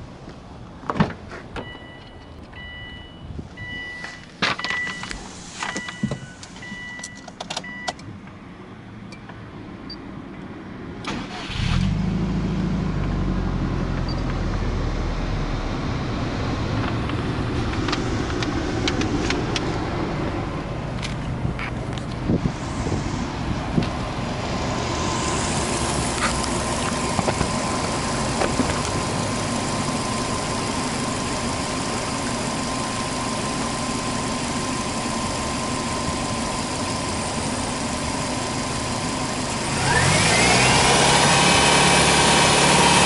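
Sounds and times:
dashboard warning chime beeping: 1.6s - 8.0s
car engine idling: 12.4s - 43.0s.

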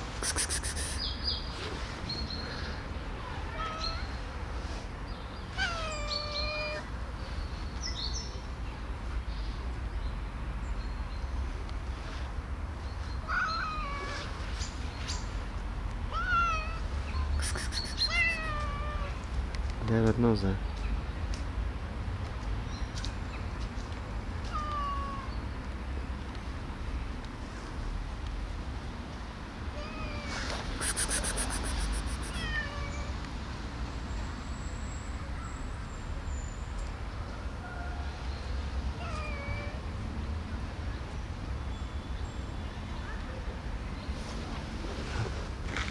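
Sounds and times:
cat meowing: 5.6s - 6.9s, 16.1s - 16.8s, 17.5s - 19.2s, 24.5s - 25.3s, 31.0s - 33.1s
rapid high chirping: 17.4s - 18.3s, 30.8s - 32.4s.

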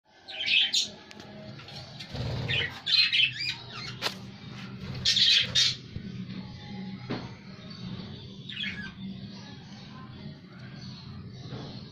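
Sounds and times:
budgerigars chirping and chattering: 1.8s - 4.2s, 4.8s - 6.1s, 8.3s - 9.8s.

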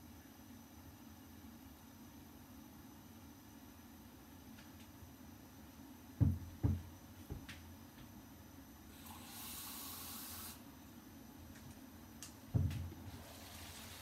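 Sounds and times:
dull knocks: 6.2s - 7.5s, 12.5s - 12.9s
tap running: 12.5s - 14.0s.

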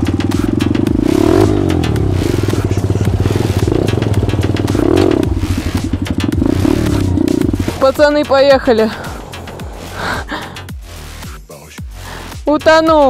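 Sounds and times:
pit bike engine revving: 0.0s - 11.2s.

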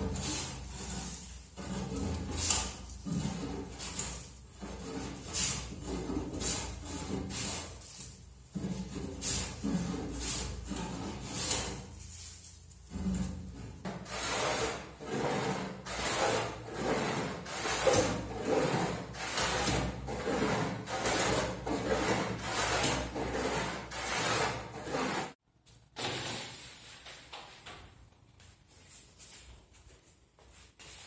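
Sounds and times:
hand plane shaving wood: 0.0s - 11.9s, 13.9s - 25.4s.

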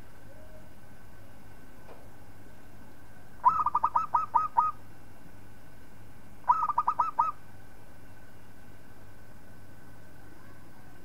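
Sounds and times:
dove cooing: 3.4s - 4.8s, 6.5s - 7.4s.

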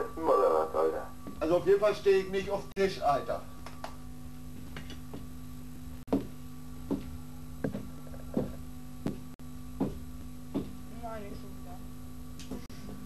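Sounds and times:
low electrical hum: 0.0s - 13.0s
footsteps on wooden floor: 4.5s - 5.4s, 6.1s - 10.8s.

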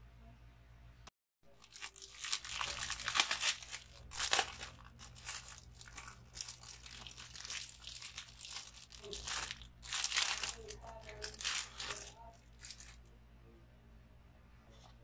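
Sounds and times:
plastic bag crinkling: 1.5s - 13.0s.

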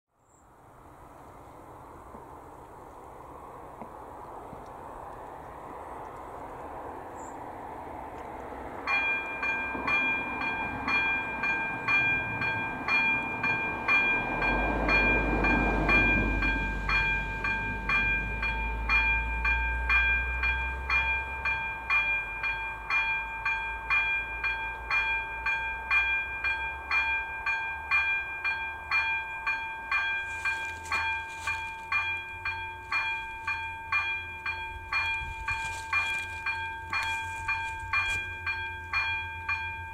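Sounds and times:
level-crossing warning bell: 8.7s - 39.9s.

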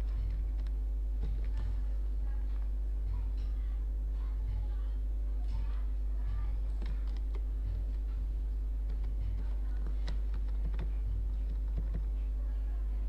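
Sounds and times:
steady low hum: 0.0s - 13.0s
keyboard keystrokes: 8.8s - 12.1s.

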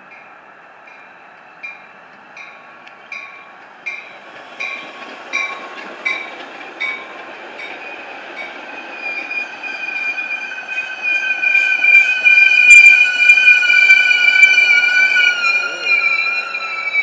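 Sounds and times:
train wheels clicking over rail joints: 0.8s - 9.2s
high squeal of wheels and brakes: 9.0s - 17.0s.

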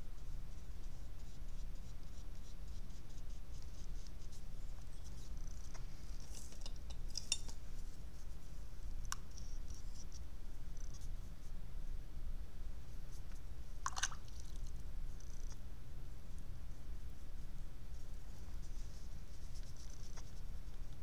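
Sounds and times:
brush scratching on paper: 0.2s - 5.4s, 17.0s - 21.0s.

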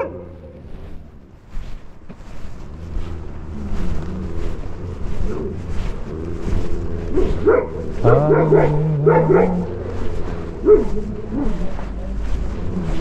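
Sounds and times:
dog barking: 0.0s - 0.5s, 7.1s - 12.0s
wind rumble on microphone: 0.0s - 13.0s.

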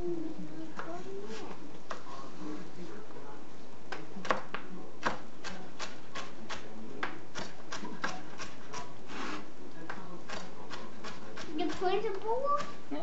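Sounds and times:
knife chopping celery: 9.9s - 12.8s.

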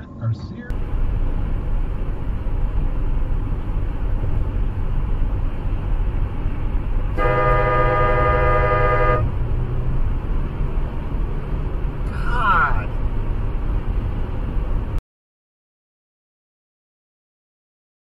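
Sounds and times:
car road and tyre rumble: 0.0s - 15.0s
car horn held: 7.2s - 9.3s.

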